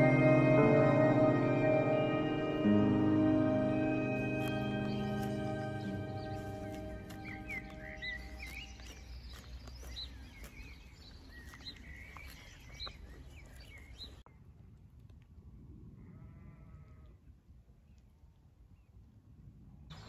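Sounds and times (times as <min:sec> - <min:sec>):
low rumble: 0:00.0 - 0:08.8
small birds chirping: 0:02.9 - 0:14.3
sheep bleat: 0:16.1 - 0:17.2.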